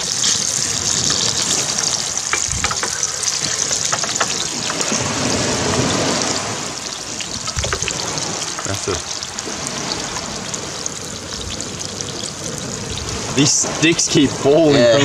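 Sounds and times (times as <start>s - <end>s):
fish sizzling in oil: 0.0s - 14.5s.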